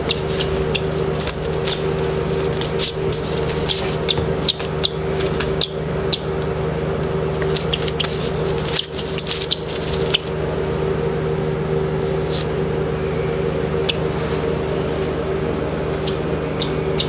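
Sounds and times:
scratchy ticks and rustles: 0:00.0 - 0:05.6, 0:07.4 - 0:10.4
steady machine hum: 0:00.0 - 0:17.0.

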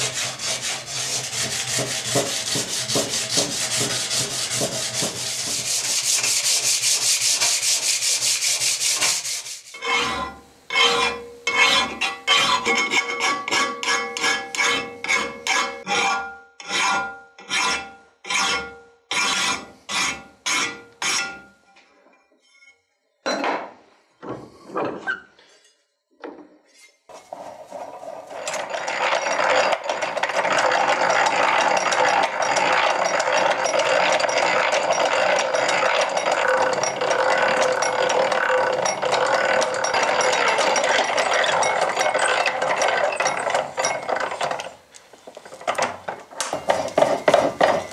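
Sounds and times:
file stroking metal blade: 0:00.0 - 0:21.4.

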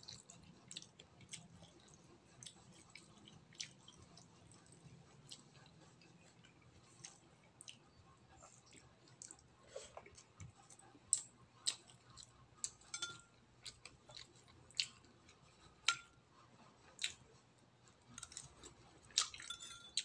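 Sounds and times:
spoon clinking ceramic bowl: 0:12.8 - 0:13.3, 0:19.4 - 0:20.0.

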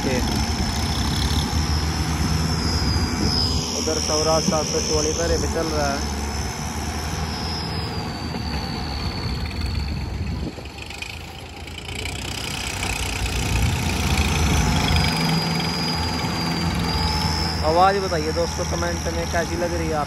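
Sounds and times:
high exhaust whistle: 0:00.0 - 0:20.0
tractor diesel engine running: 0:00.0 - 0:20.0.

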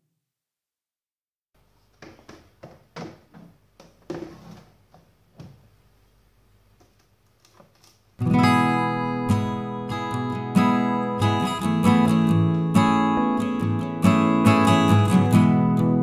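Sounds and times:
strummed acoustic guitar music: 0:08.2 - 0:16.0.

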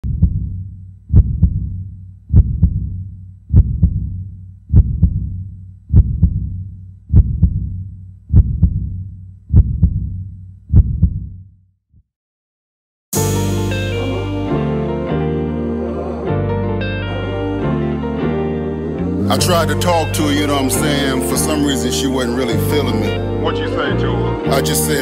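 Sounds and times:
heartbeat thumps: 0:00.0 - 0:11.4.

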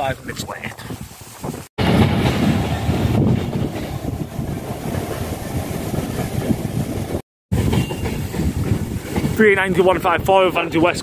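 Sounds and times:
locomotive passing: 0:01.8 - 0:11.0.

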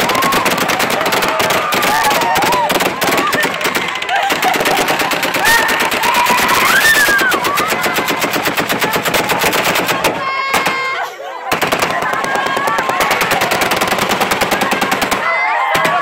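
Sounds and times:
crowd voices crying out: 0:00.0 - 0:16.0.

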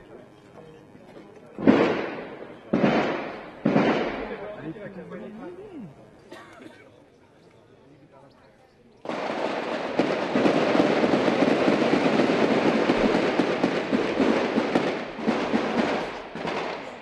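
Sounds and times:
rapid gunfire: 0:01.6 - 0:04.5, 0:09.1 - 0:17.0.

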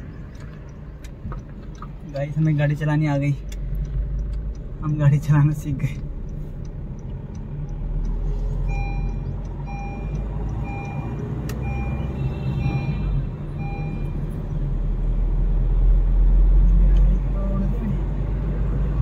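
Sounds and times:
engine and road rumble: 0:00.0 - 0:19.0
electronic warning beep: 0:08.6 - 0:14.3.

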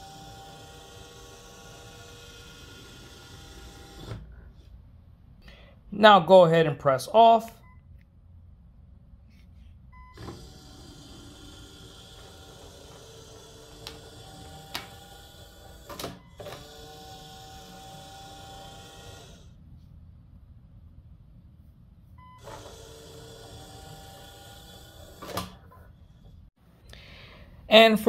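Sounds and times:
small electric motor running: 0:00.0 - 0:04.3, 0:10.1 - 0:19.6, 0:22.4 - 0:25.6.

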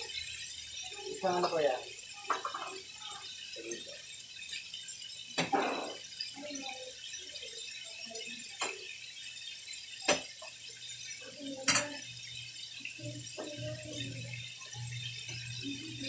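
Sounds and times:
deep-frying sizzle: 0:00.0 - 0:16.0.

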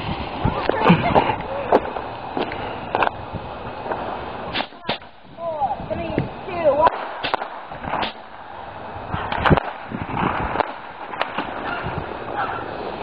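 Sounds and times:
footsteps on gritty asphalt: 0:00.0 - 0:03.2.

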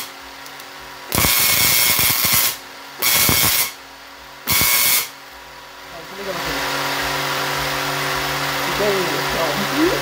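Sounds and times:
tesla coil spark discharge: 0:01.1 - 0:03.8, 0:04.4 - 0:05.2.

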